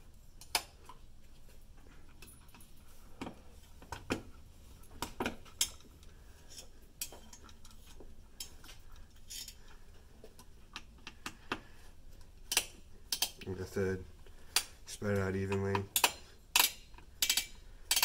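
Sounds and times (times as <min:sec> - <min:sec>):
screwdriver clicking on metal screws: 0:12.5 - 0:13.5, 0:14.6 - 0:18.0.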